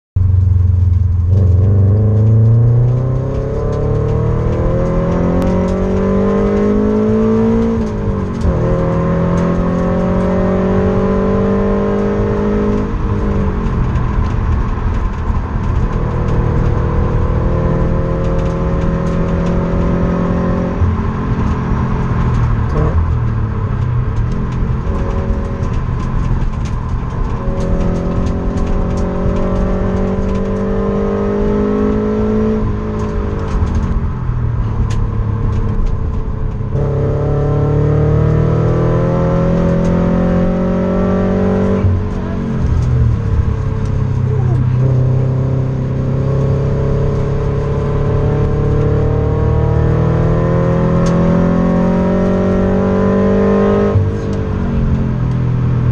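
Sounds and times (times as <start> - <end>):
car engine accelerating: 0.2 - 55.9.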